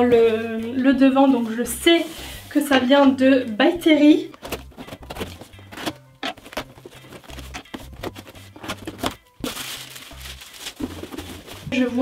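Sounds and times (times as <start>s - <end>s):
paper packing crinkling: 4.4s - 12.0s.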